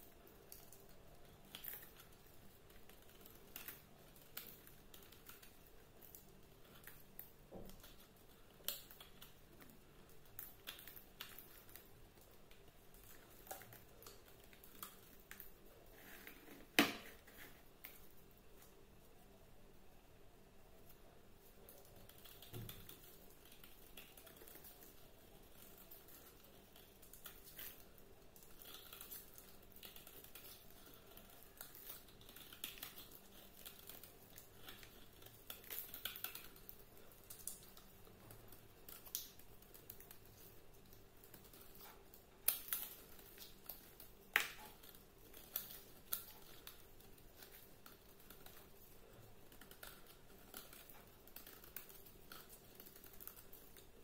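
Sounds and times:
knife blade shaving soap: 0:21.6 - 0:54.0.

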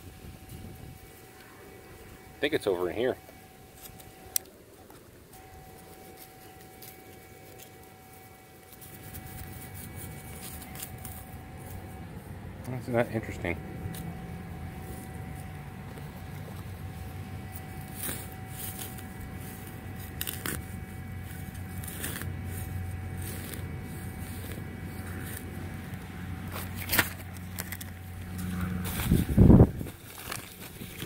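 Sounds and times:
faint steady tone: 0:00.0 - 0:28.8
steady low rumble: 0:03.1 - 0:31.0
trowel rummaging through soil: 0:14.8 - 0:31.0.

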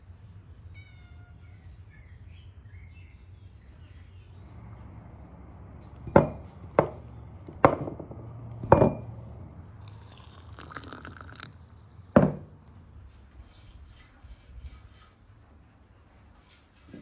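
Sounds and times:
clay pot and glass knocking on table: 0:07.6 - 0:09.1, 0:12.1 - 0:12.5.

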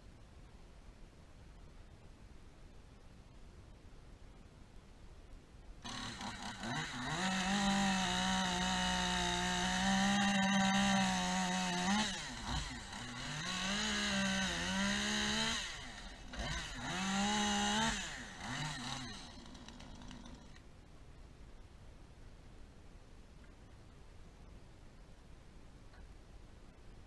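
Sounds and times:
chainsaw cutting branches: 0:05.8 - 0:20.6.

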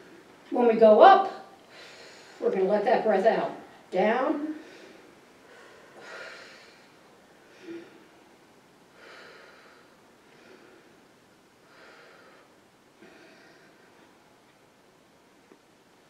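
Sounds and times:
woman breathing slowly: 0:01.6 - 0:02.4, 0:04.5 - 0:14.7.

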